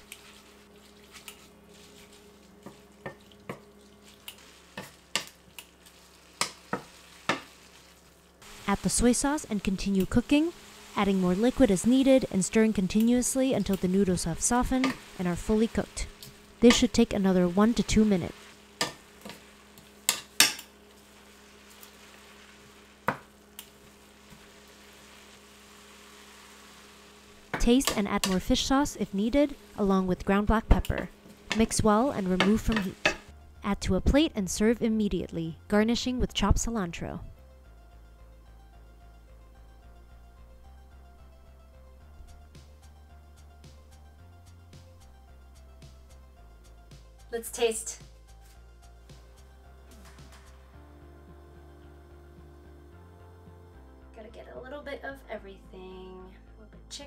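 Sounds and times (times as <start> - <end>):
faint sizzle of stir-frying: 0.0 - 33.4, 37.6 - 54.6.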